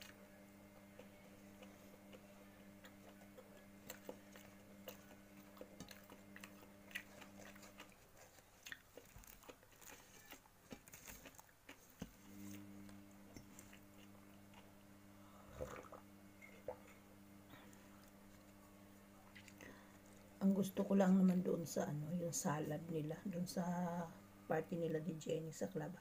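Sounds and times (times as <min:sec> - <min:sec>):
low steady hum: 0:00.0 - 0:26.0
chewing mouth sounds: 0:00.8 - 0:12.6
bread tearing crackles: 0:02.9 - 0:12.7.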